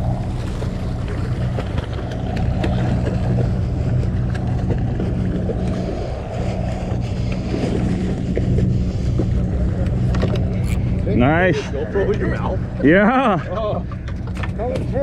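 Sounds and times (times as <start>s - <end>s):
wind on microphone: 0.0s - 11.5s
boat engine humming: 0.0s - 15.0s.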